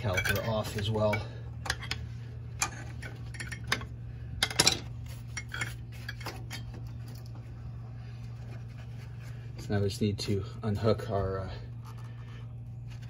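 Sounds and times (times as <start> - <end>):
screwdriver clanking on metal: 0.0 - 2.0
steady low hum: 0.0 - 13.0.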